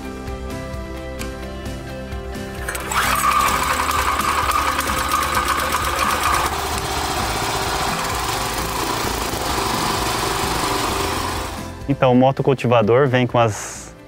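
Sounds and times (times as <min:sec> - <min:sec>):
tiller engine running: 0:02.5 - 0:11.8.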